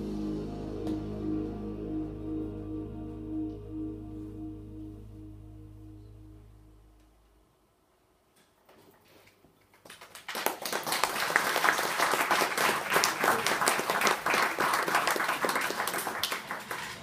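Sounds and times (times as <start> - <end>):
audience applauding: 9.8 - 17.0.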